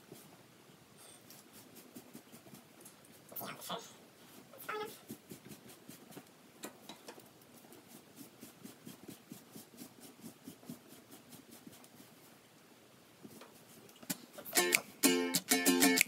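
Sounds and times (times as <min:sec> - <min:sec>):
brush rubbing dog's coat: 0:01.1 - 0:06.3, 0:07.2 - 0:12.4, 0:13.2 - 0:13.9.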